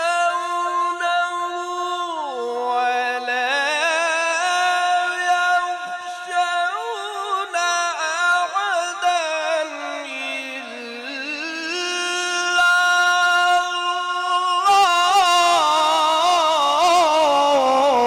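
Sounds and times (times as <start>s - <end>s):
man reciting melodically: 0.0s - 18.0s.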